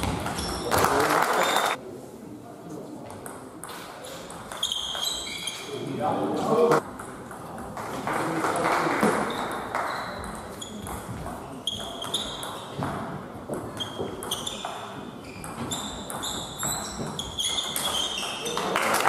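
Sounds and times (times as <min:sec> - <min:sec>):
table tennis ball pinging: 0:15.4 - 0:18.4.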